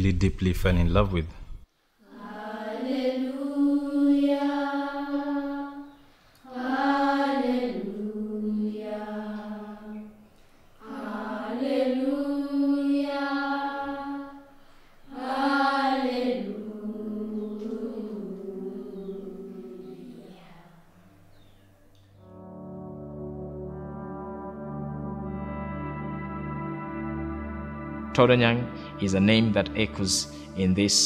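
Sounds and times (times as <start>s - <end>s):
slow sung chant: 2.0s - 22.4s.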